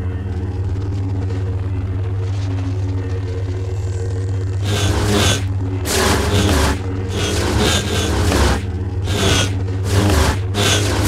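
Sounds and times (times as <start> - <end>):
lightsaber blade hum: 4.6 - 11.0
lightsaber swing whooshes: 4.6 - 11.0.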